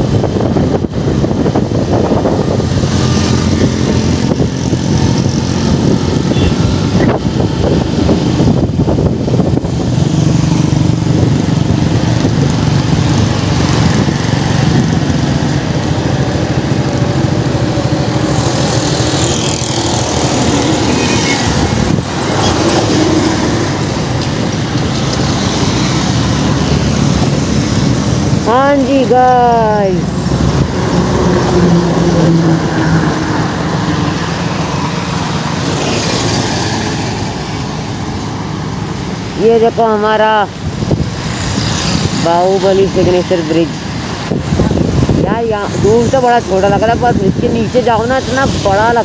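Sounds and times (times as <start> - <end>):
wind rush on microphone: 0.0 - 49.0
motorcycle engine running: 0.1 - 31.5.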